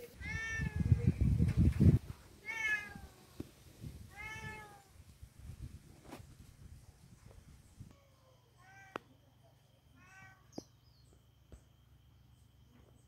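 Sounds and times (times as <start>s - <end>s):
cat meowing: 0.2s - 0.9s, 2.4s - 3.2s, 4.1s - 4.9s, 10.0s - 10.6s.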